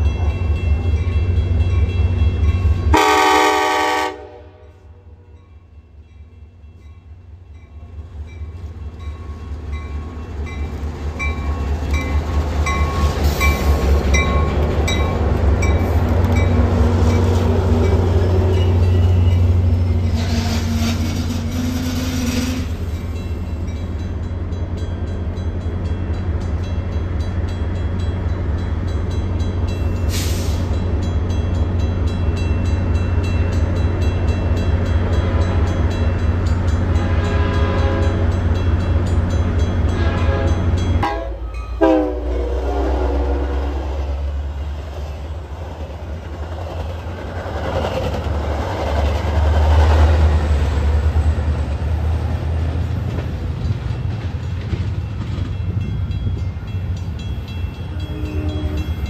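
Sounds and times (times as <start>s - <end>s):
train rumbling by: 0.0s - 59.0s
train horn: 2.9s - 5.2s, 20.0s - 22.8s, 37.0s - 38.4s, 39.9s - 44.1s, 57.9s - 59.0s.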